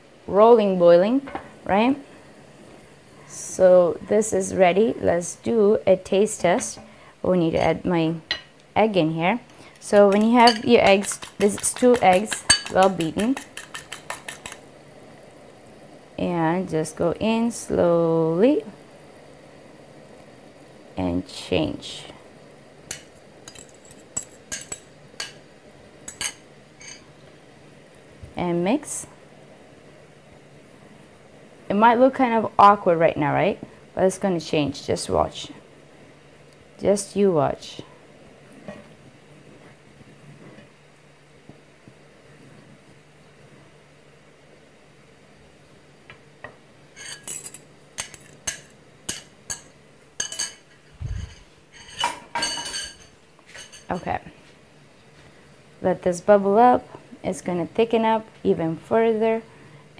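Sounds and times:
metal fork clinking on ceramic: 0:10.0 - 0:14.6, 0:47.0 - 0:50.6.

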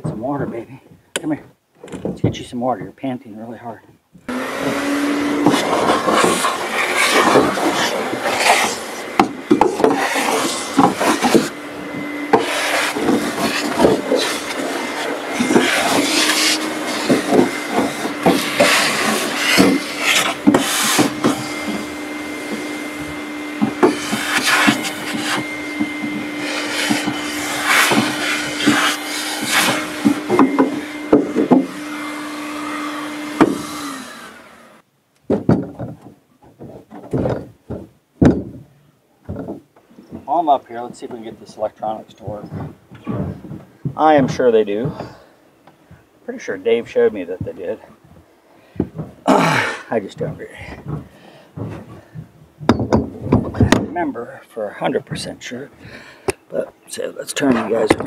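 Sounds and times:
shop vac humming: 0:04.2 - 0:34.9, 0:37.1 - 0:58.0
hose nozzle scraping aluminum floor: 0:04.5 - 0:34.0.

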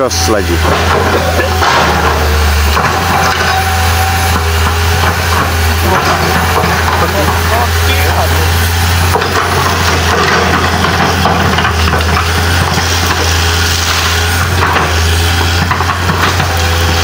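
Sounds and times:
excavator diesel engine droning: 0:00.0 - 0:17.0
branches cracking and splintering: 0:09.0 - 0:17.0.

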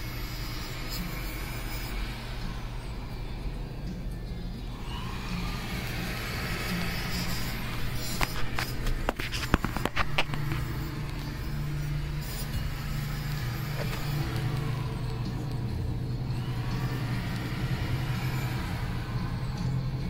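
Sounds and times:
sharp clicks and knocks: 0:08.0 - 0:11.3.

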